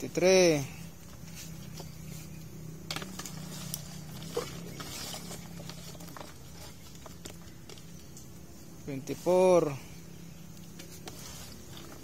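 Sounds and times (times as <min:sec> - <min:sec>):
steady low hum: 0:00.0 - 0:12.0
plastic cup scraping tub: 0:02.9 - 0:07.9, 0:10.8 - 0:12.0.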